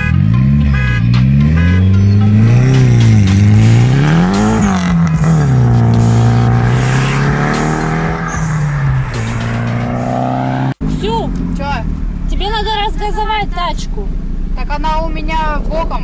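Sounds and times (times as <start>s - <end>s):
race car engines accelerating: 0.0s - 12.8s.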